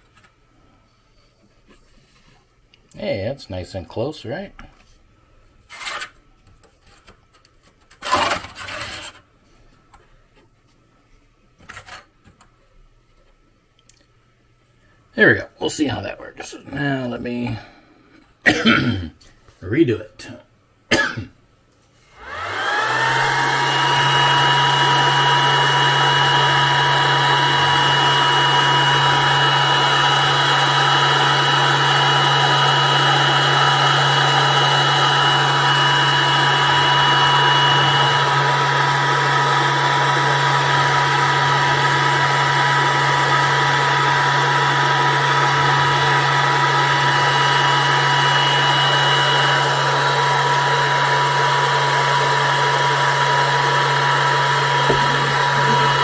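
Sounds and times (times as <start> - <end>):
electric blower motor humming: 22.1 - 56.0
steady whining tones: 22.2 - 56.0.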